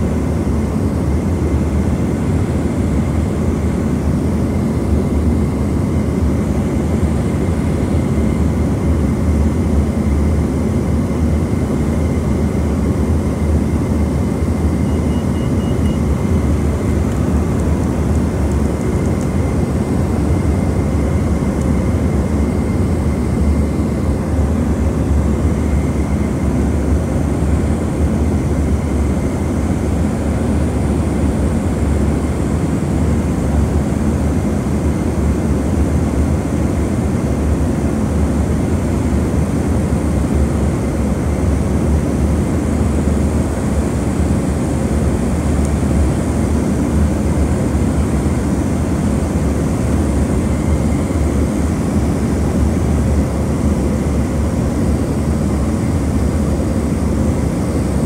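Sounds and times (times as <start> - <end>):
faint high whine: 0.0 - 34.4
turboprop engines droning in cabin: 0.0 - 58.0.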